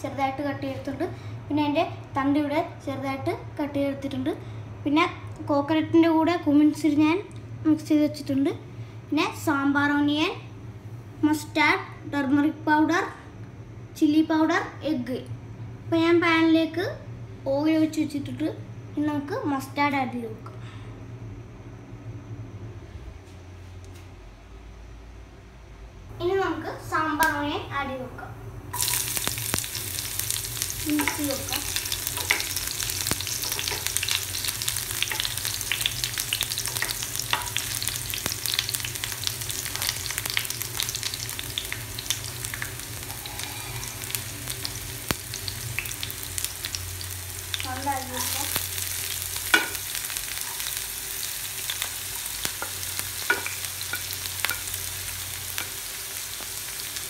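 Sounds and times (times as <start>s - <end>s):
oil sizzling in a frying pan: 28.7s - 57.0s.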